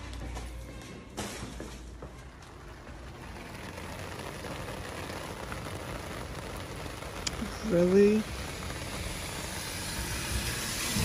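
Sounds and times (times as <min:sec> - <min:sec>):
rain falling: 0:02.2 - 0:11.0.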